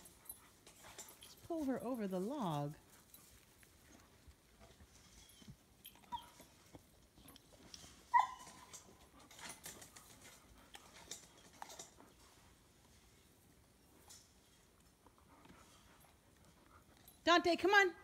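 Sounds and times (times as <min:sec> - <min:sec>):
dog yipping and whining: 0:05.0 - 0:06.6, 0:07.8 - 0:08.9.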